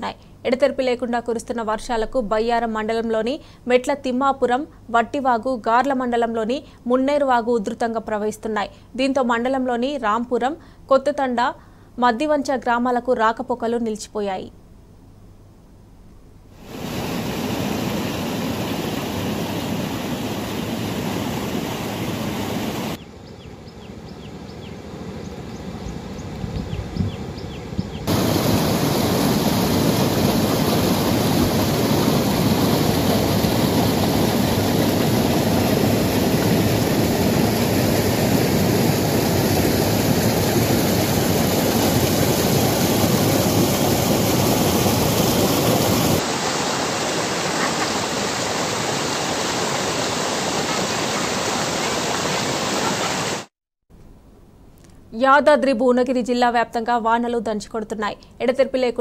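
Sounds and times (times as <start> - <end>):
rushing floodwater: 16.6 - 23.0, 28.1 - 53.5.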